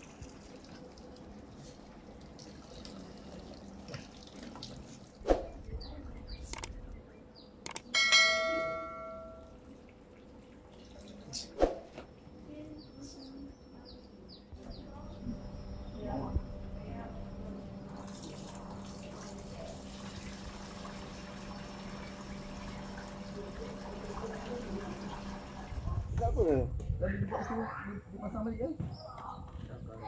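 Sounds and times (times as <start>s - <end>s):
ringing metal clang: 7.9s - 9.6s.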